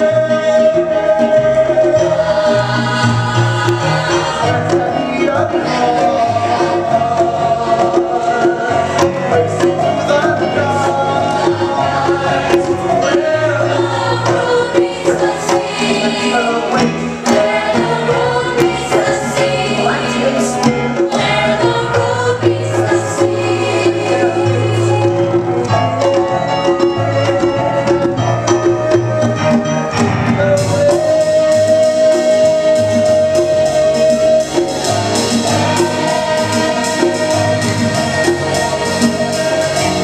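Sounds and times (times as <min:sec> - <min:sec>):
cast singing in chorus: 0:00.0 - 0:29.9, 0:30.5 - 0:40.0
live band with drum kit: 0:00.0 - 0:40.0.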